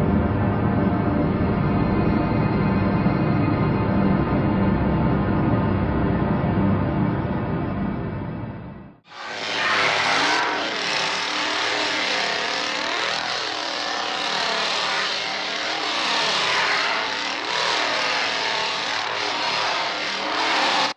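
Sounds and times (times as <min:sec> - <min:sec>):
chainsaw engine revving: 0:09.1 - 0:20.9.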